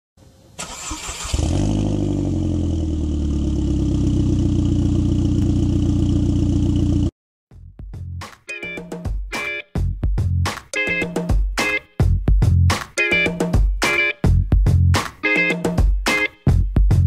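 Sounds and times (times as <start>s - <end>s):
car engine starting and idling: 0.6s - 7.1s
music: 7.5s - 17.0s.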